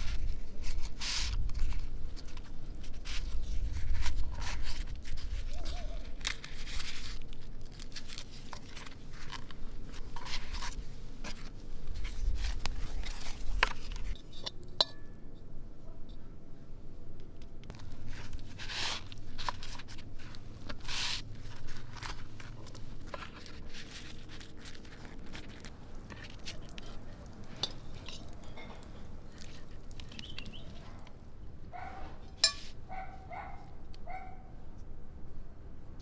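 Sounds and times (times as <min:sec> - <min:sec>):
pastry crinkling being folded: 0:00.0 - 0:14.2, 0:17.7 - 0:31.1
metal spoon scraping in bowl: 0:32.3 - 0:32.8.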